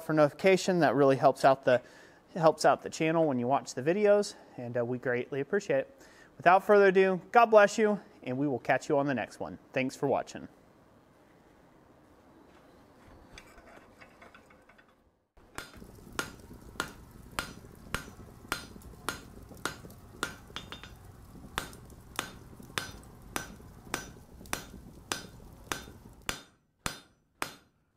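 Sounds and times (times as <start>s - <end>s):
faint workshop room sound: 0.0s - 27.9s
hammer blows ringing on steel: 21.6s - 27.7s.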